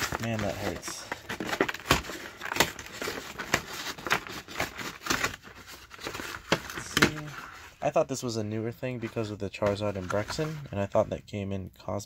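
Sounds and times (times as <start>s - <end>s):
cardboard being torn open: 0.0s - 7.3s.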